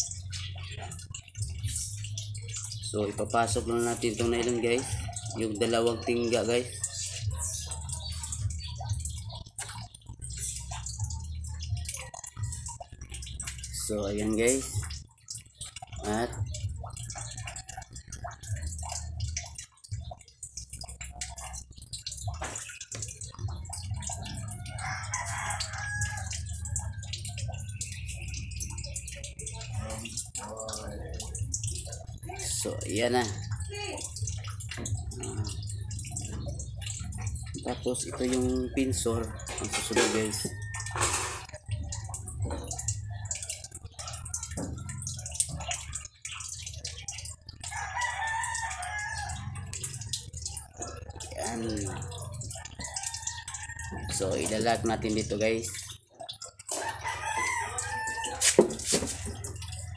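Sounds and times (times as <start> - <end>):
rooster crowing: 56.8 - 58.8
fishing line clicking and rustling: 58.2 - 59.8.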